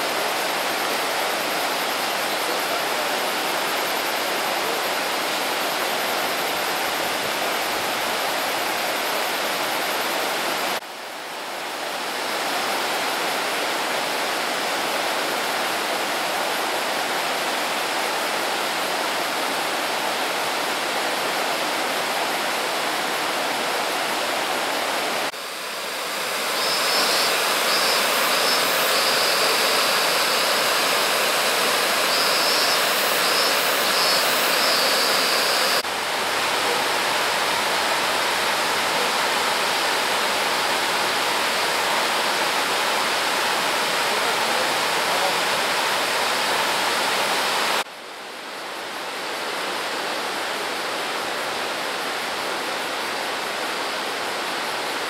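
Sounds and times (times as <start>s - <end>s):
river rapids roaring: 18.6s - 47.8s.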